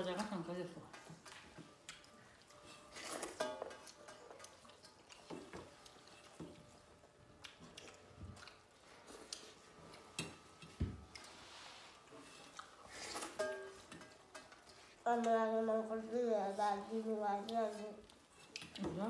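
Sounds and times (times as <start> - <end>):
chewing: 1.0 - 11.4, 12.4 - 13.4.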